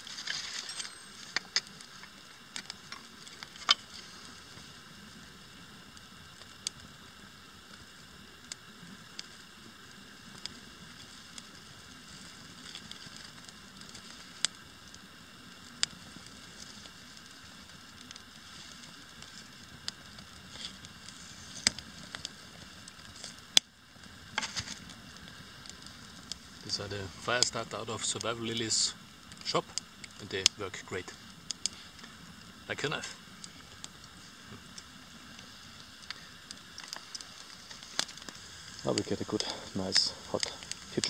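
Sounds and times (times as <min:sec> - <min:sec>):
campfire crackling: 0:00.0 - 0:41.0.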